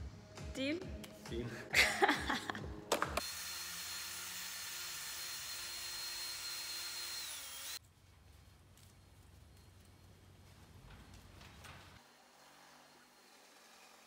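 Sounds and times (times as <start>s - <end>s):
cordless drill whining: 3.2s - 7.8s.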